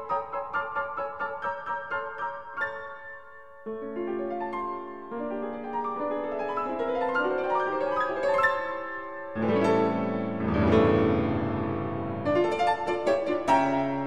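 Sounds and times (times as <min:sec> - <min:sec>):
background piano music: 0:00.0 - 0:14.0.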